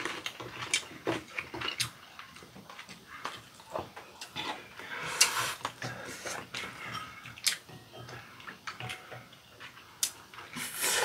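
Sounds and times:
chewing: 0:00.0 - 0:11.0.

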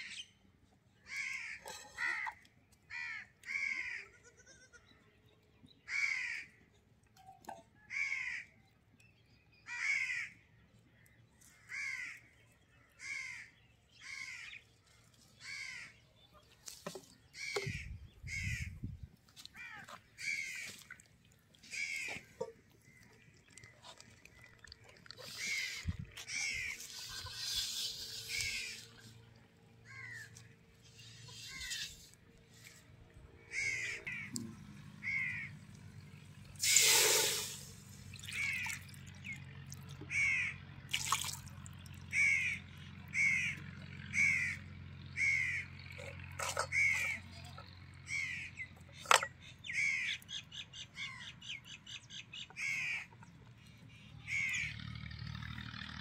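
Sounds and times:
crow cawing: 0:01.1 - 0:04.2, 0:05.9 - 0:06.5, 0:07.9 - 0:08.5, 0:09.7 - 0:10.4, 0:11.6 - 0:12.3, 0:13.0 - 0:14.6, 0:15.4 - 0:15.9, 0:19.5 - 0:20.8, 0:29.8 - 0:30.4, 0:33.5 - 0:34.4, 0:35.0 - 0:35.6, 0:40.1 - 0:40.6, 0:42.1 - 0:44.6, 0:45.2 - 0:45.7
hiss: 0:36.6 - 0:37.8.

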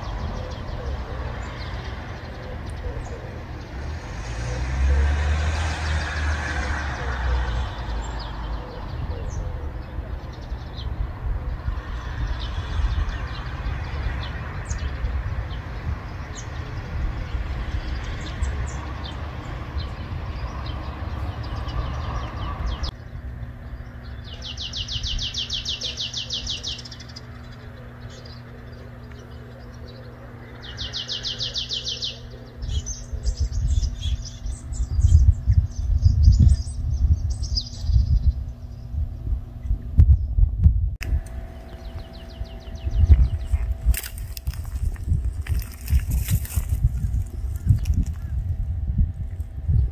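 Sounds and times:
road traffic: 0:00.0 - 0:40.0, 0:41.0 - 0:49.9
songbirds chirping: 0:00.0 - 0:49.9
bird trills: 0:21.2 - 0:39.0.

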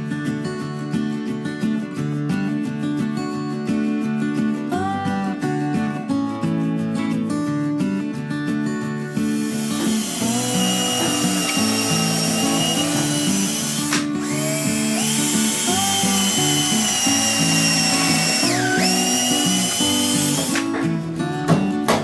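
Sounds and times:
acoustic guitar music: 0:00.0 - 0:22.0
cordless drill motor whine: 0:09.2 - 0:20.7.

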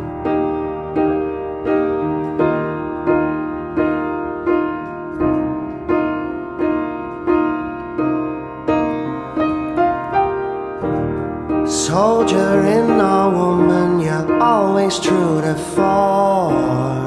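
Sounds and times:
piano chords: 0:00.0 - 0:17.0.

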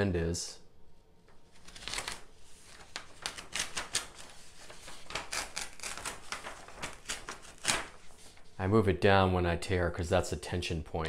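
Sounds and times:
paper sheets tearing: 0:01.6 - 0:08.4.

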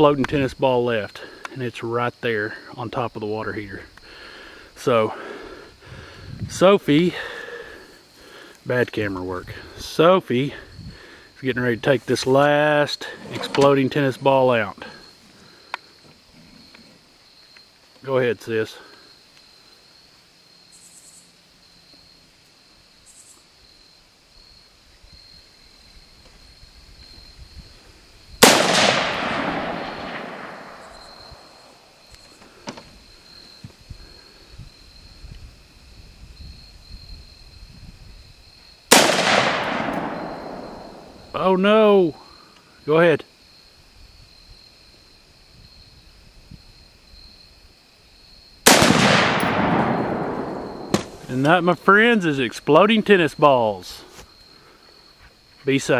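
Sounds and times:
faint insect buzz: 0:03.5 - 0:28.4, 0:29.5 - 0:38.9, 0:39.8 - 0:48.6, 0:49.7 - 0:55.9
rifle shot echoing: 0:28.4 - 0:31.7, 0:38.9 - 0:41.3, 0:48.6 - 0:51.3.

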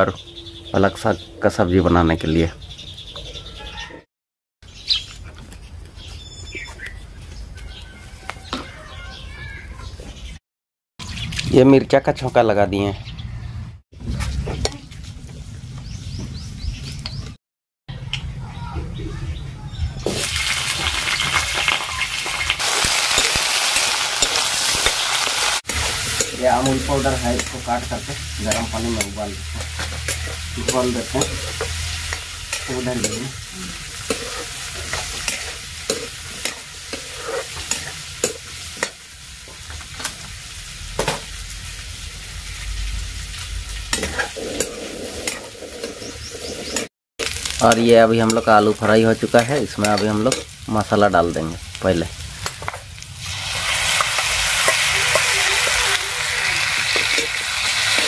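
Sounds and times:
potatoes sizzling in hot oil: 0:20.1 - 0:45.6, 0:47.2 - 0:58.0
metal spatula scraping pan: 0:25.7 - 0:38.9, 0:43.9 - 0:46.9.

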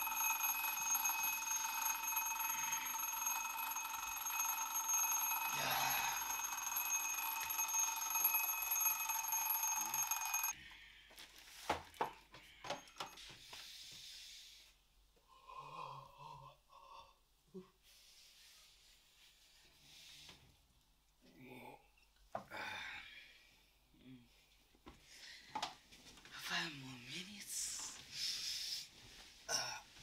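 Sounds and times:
alarm clock ringing: 0:00.0 - 0:10.6.

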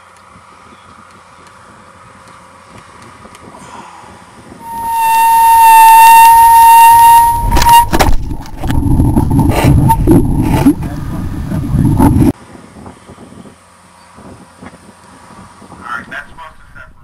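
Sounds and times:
wind buffeting: 0:00.3 - 0:13.5
loud high whistle: 0:04.6 - 0:08.1.

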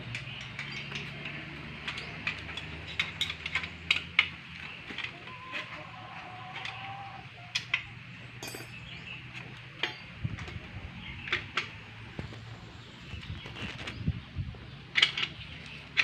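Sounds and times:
hand tools clinking on metal: 0:00.0 - 0:10.6
bright ringing clink: 0:08.4 - 0:08.9.

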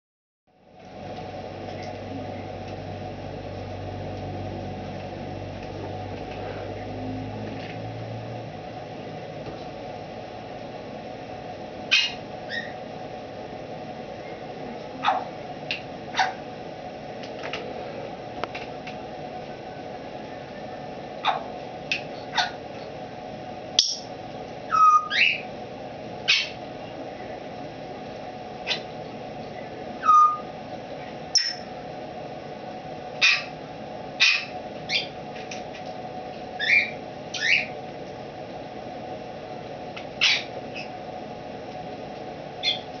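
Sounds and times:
low machine hum: 0:00.5 - 0:43.0
parrot chirps: 0:11.9 - 0:12.8, 0:23.8 - 0:24.1, 0:24.7 - 0:25.5, 0:26.3 - 0:26.6, 0:30.0 - 0:30.5, 0:31.3 - 0:31.7, 0:33.2 - 0:33.5, 0:34.2 - 0:35.2, 0:36.6 - 0:37.7, 0:40.2 - 0:40.9, 0:42.6 - 0:42.9
parrot whistled calls: 0:24.7 - 0:25.5, 0:30.0 - 0:30.5, 0:31.4 - 0:31.7, 0:36.6 - 0:37.7, 0:42.6 - 0:42.9.

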